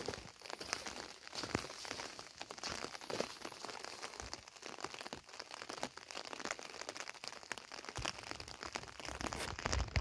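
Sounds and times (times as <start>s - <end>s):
rain falling: 0.0s - 10.0s.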